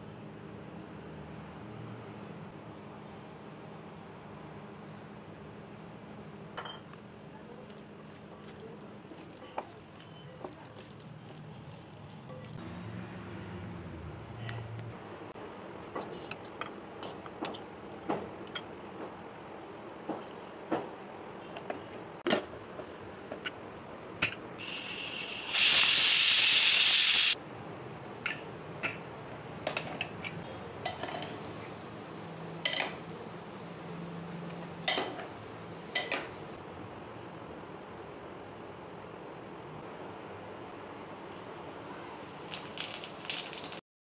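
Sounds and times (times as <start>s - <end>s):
pressure cooker whistle steam hiss: 24.6s - 27.4s.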